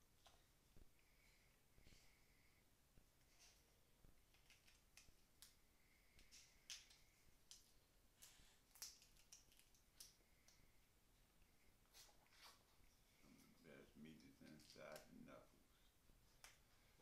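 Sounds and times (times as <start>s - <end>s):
crab shells cracking: 4.3s - 5.6s, 6.2s - 10.6s.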